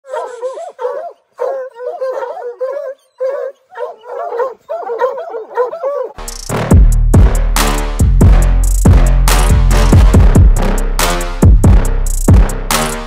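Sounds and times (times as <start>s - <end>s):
hounds whining and yipping: 0.0s - 6.2s
music with heavy drum beat: 6.2s - 13.0s.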